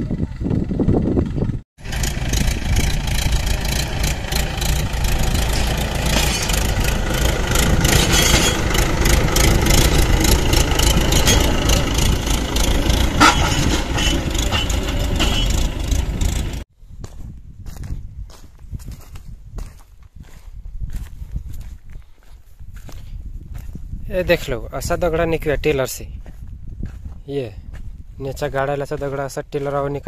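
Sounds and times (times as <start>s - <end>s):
tractor diesel engine running: 0.0s - 16.7s.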